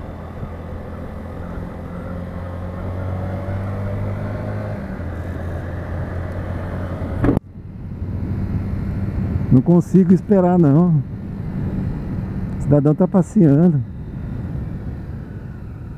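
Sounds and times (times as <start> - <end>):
road and wind noise: 0.0 - 15.9
small motorcycle engine running: 0.0 - 15.9
sudden thump: 7.2 - 7.4.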